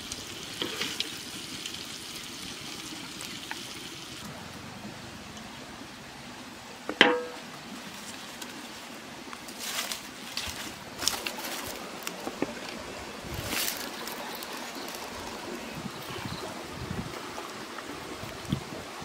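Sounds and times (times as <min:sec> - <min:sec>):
stream rushing: 0:00.0 - 0:19.0.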